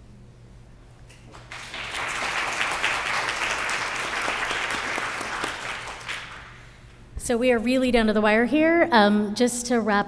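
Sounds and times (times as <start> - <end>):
audience applauding: 1.3 - 6.8.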